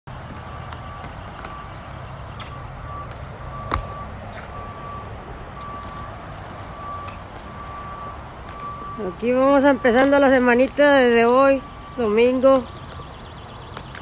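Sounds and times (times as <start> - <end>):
low engine rumble: 0.1 - 14.0
vehicle backup alarm beeping: 0.1 - 14.0.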